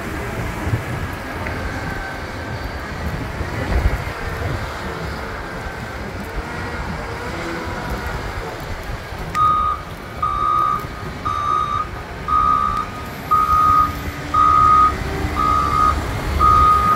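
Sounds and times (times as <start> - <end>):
loader engine running: 0.0 - 16.9
reversing alarm beeping: 9.4 - 16.9.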